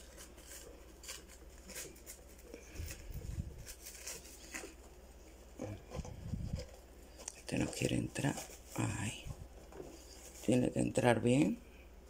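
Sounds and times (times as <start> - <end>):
hands rustling in potting soil: 0.0 - 10.9.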